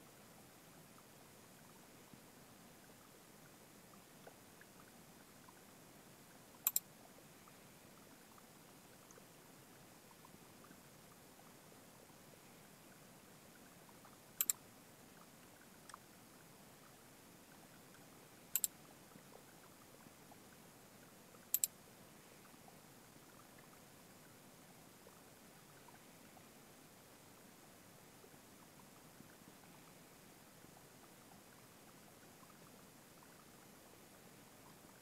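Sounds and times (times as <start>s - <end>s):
faint room hiss: 0.0s - 35.0s
sharp double clicks: 6.6s - 6.9s, 14.4s - 14.6s, 18.5s - 18.7s, 21.5s - 21.7s
faint tick: 15.4s - 16.0s.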